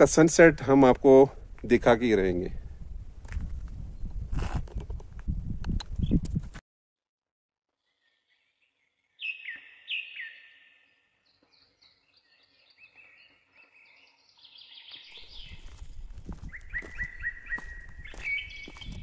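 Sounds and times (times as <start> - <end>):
birds chirping: 7.8 - 19.0
loud downward-sliding bird calls: 9.2 - 15.6, 16.5 - 18.9.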